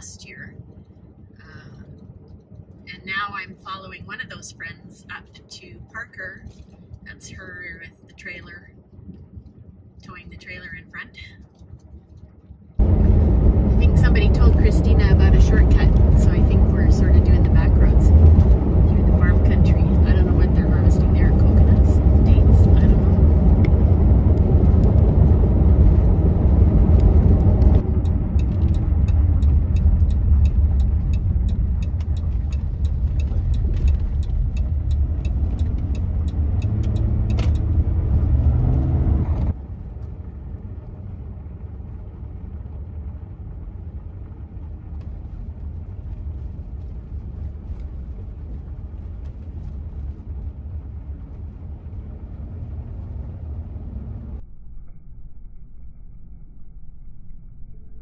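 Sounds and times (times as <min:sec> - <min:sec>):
engine and tyre rumble in car: 0:00.0 - 0:58.0
fast light ticking: 0:27.0 - 0:37.8.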